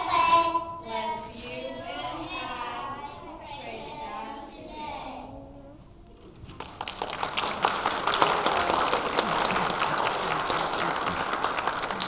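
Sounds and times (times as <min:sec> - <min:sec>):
audience clapping: 0:06.5 - 0:12.0.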